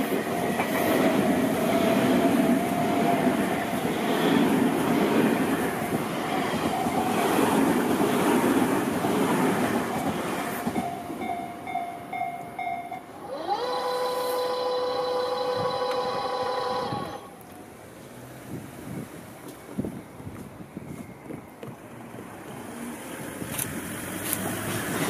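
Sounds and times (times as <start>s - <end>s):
electric train rumbling past: 0.0s - 25.0s
long steady rising tone: 10.8s - 17.4s.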